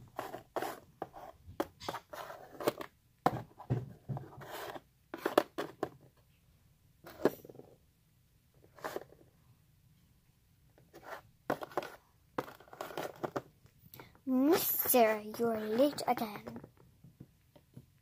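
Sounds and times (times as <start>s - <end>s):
plastic toys clicking on cardboard: 0.1s - 6.1s, 11.0s - 16.8s.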